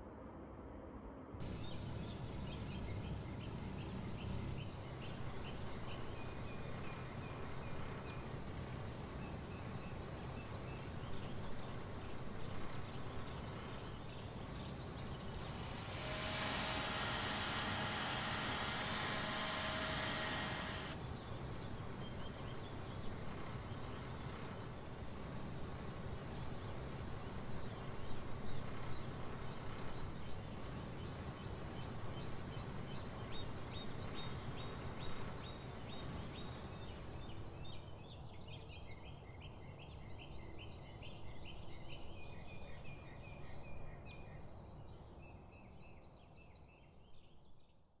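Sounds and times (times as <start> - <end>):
steady low rumble: 1.4 - 37.8
bird chirping: 1.4 - 37.9.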